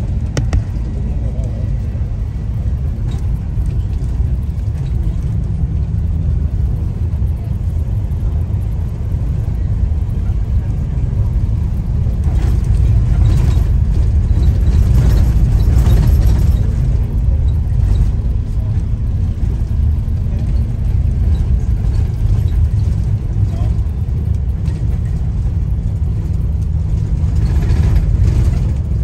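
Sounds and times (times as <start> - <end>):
bus engine and road rumble: 0.0 - 29.0
light rattling and knocking: 0.2 - 0.8.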